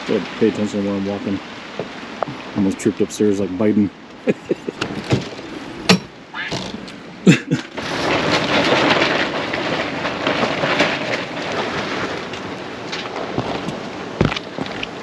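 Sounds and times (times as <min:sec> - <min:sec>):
heavy rain on tarps: 0:00.0 - 0:15.0
sharp knocks: 0:04.8 - 0:06.9.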